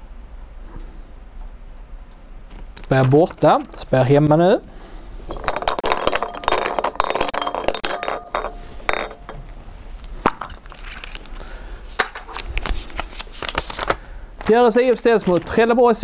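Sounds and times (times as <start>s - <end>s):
balls rattling in glass bowl: 5.3s - 9.6s.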